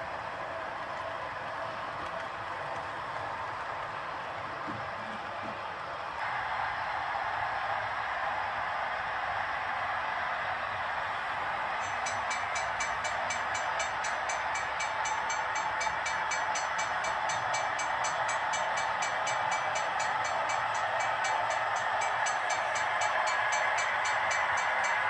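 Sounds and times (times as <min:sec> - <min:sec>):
model train motors whirring on rails: 0:11.8 - 0:25.0.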